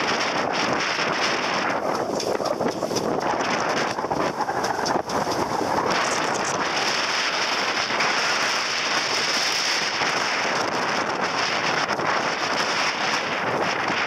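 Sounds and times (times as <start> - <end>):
hull splashing through choppy water: 0.0 - 14.0
wind buffeting microphone: 0.0 - 14.0.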